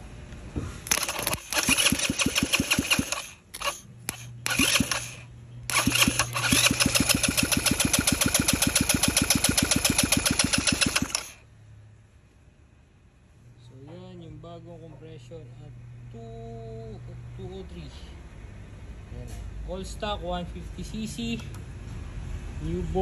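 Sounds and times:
scooter engine cranking: 0.8 - 11.4.

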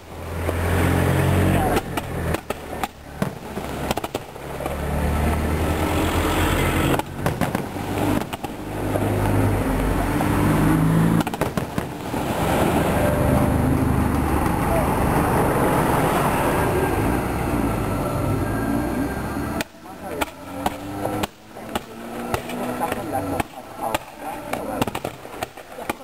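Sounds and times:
firework shells booming: 1.6 - 4.8, 6.8 - 9.9, 11.1 - 12.6, 19.6 - 26.0
sharp firework bangs: 6.8 - 8.6, 11.1 - 12.6.

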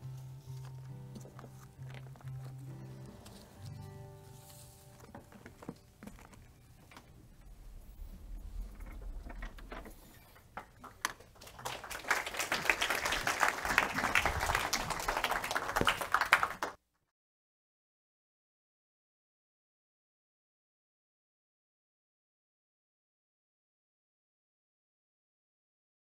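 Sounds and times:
audience applauding: 10.7 - 16.8.

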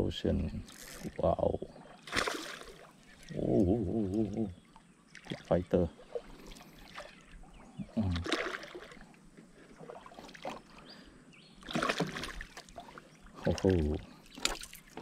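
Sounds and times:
fish splashing and thrashing: 1.9 - 3.4, 5.1 - 10.8, 11.6 - 15.0.

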